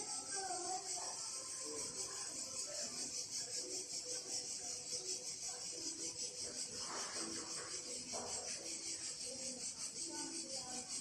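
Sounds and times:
cicadas buzzing: 0.0 - 11.0.

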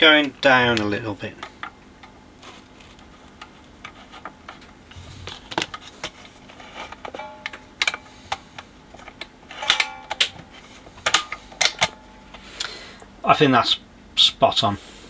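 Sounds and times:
short metallic ring: 7.1 - 8.3, 9.5 - 10.9.

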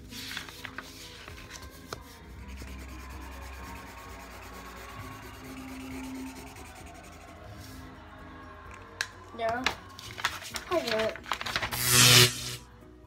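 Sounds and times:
marker rubbing on paper: 0.9 - 7.7.

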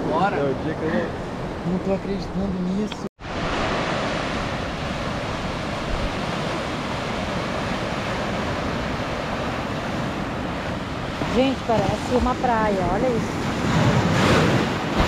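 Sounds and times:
breaking surf: 3.2 - 15.0.

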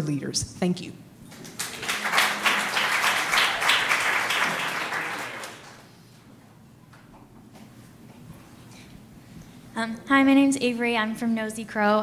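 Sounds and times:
audience applauding: 1.3 - 6.0.

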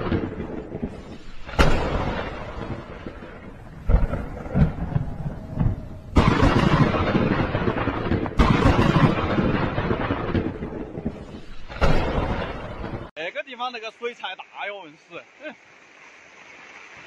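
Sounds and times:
thunder claps with rumble: 0.0 - 13.1.

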